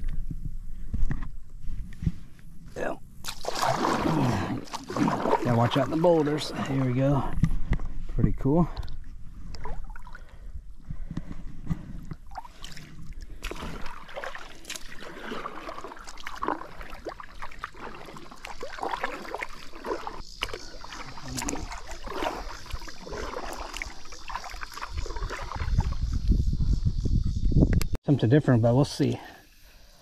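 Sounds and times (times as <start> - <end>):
paddle strokes splashing: 3.2 - 7.4, 11.7 - 26.0
water gurgling: 3.3 - 7.4, 12.2 - 26.2.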